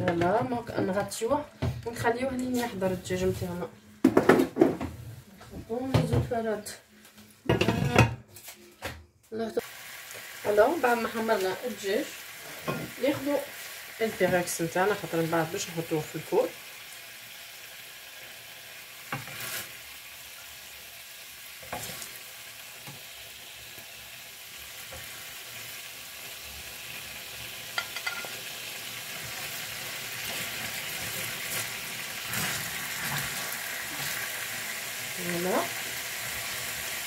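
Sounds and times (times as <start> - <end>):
food sizzling in a pan: 9.6 - 37.0.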